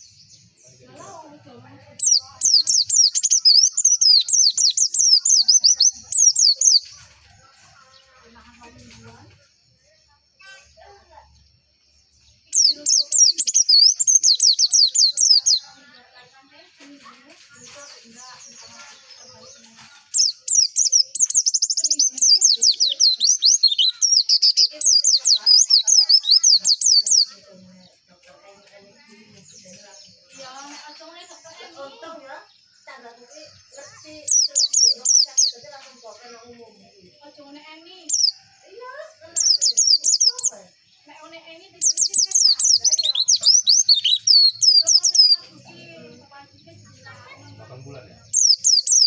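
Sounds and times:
bird twittering song: 0.0s - 49.0s
bird singing high whistled notes: 12.6s - 15.6s, 20.2s - 27.3s, 34.2s - 35.6s, 41.8s - 45.4s, 48.3s - 49.0s.

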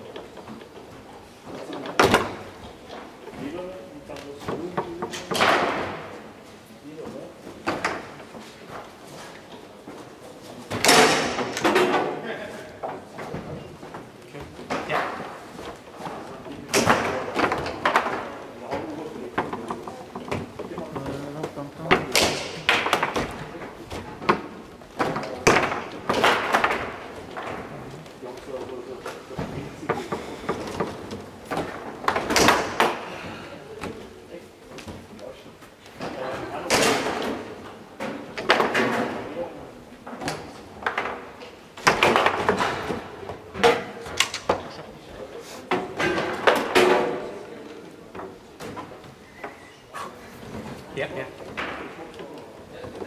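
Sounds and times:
foosball clacks and knocks: 12.8s - 28.1s, 29.0s - 33.2s, 35.9s - 45.0s, 45.7s - 47.5s.

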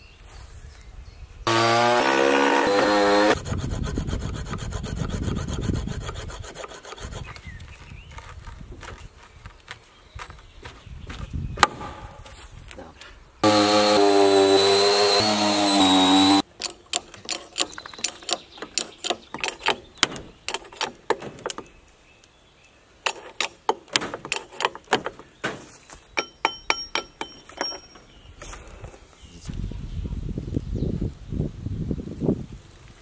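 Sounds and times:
ringing metallic taps: 26.2s - 28.1s.

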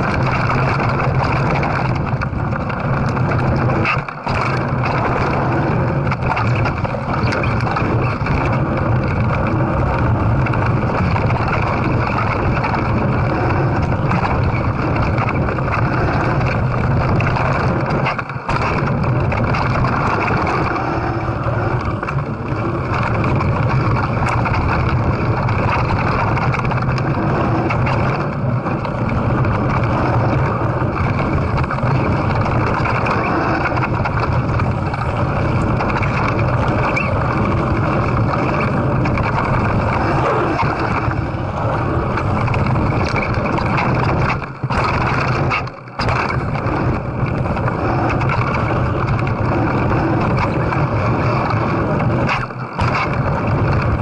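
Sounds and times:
mountain bike rattling: 0.0s - 54.0s
wind rushing over microphone: 0.0s - 54.0s.

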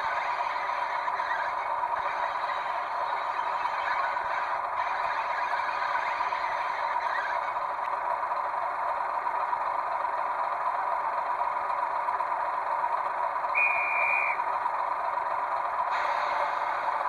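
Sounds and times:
model locomotive engine drone: 0.0s - 17.0s.

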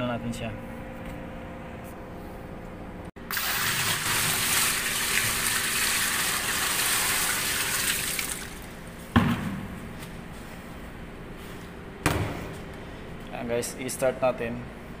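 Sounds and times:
water pouring into washing machine: 3.3s - 8.7s.

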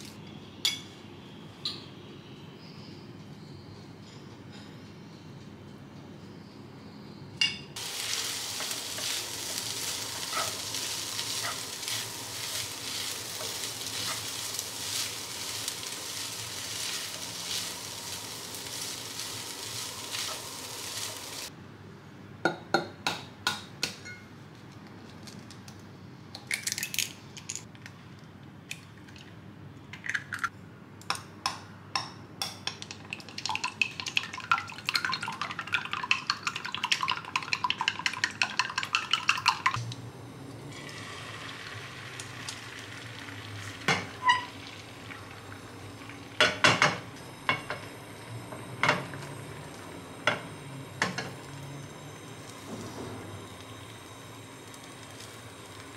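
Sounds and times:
food sizzling in a frying pan: 7.8s - 21.5s, 40.7s - 55.9s
wooden spatula stirring: 8.0s - 21.5s.

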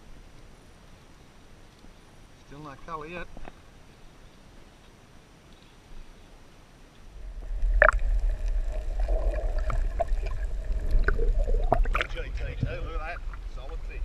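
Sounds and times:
underwater water rush: 7.1s - 14.0s.

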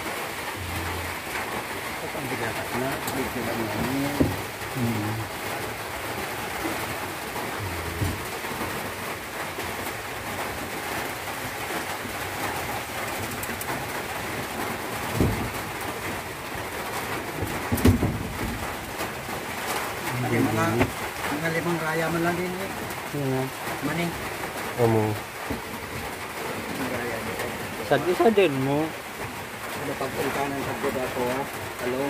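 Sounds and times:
steady hiss: 0.0s - 32.0s
soft knocks: 3.7s - 4.5s, 7.6s - 8.4s, 17.4s - 18.7s.

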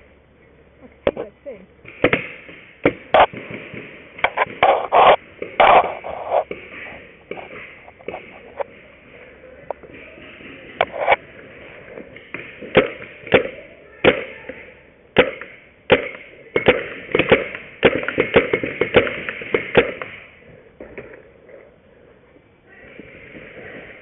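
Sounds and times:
paintball markers firing: 12.2s - 14.6s, 15.2s - 21.2s.

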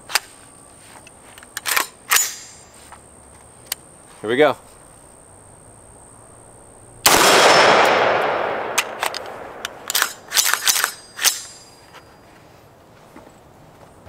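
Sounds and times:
rifle action metallic clicks: 1.3s - 2.6s, 7.1s - 11.8s
rifle shot with echo: 7.0s - 11.4s.

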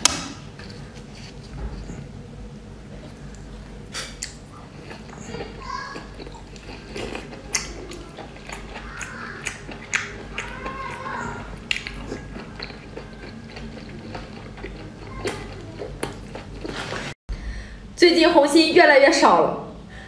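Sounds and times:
person chewing food: 2.8s - 17.2s
wet mouth clicks and smacks: 9.5s - 10.4s.

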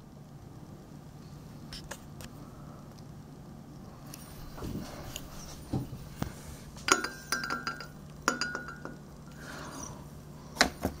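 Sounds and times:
glass light bulbs clinking: 6.8s - 9.1s.

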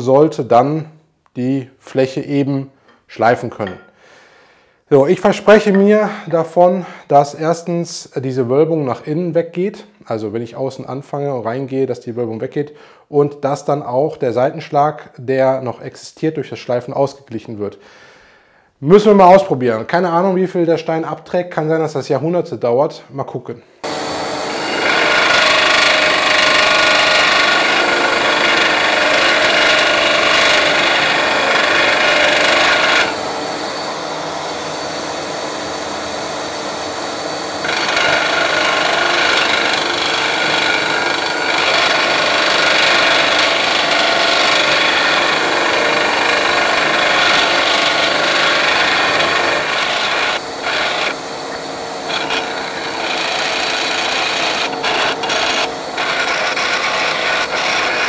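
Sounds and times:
disc sander motor running: 23.8s - 58.0s
stone grinding on spinning disc: 23.8s - 58.0s.

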